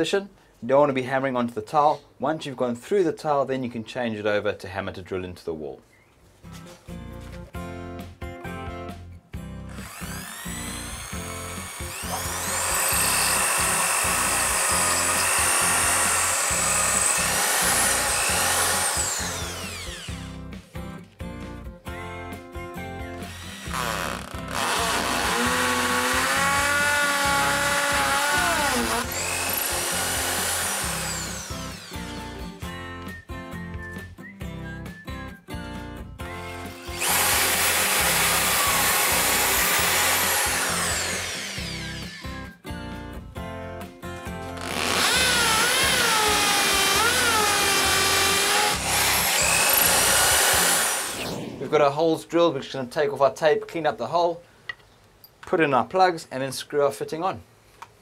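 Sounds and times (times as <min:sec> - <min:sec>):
background music: 0:06.6 - 0:51.9
hammer drill drilling into wall: 0:09.7 - 0:20.4, 0:23.2 - 0:32.4, 0:36.4 - 0:42.4, 0:44.6 - 0:51.6.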